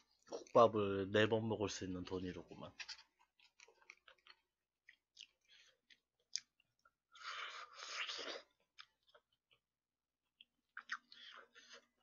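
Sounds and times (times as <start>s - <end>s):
person chewing noisily: 3.0s - 12.0s
mouth clicks while eating: 4.2s - 6.6s, 10.4s - 11.3s.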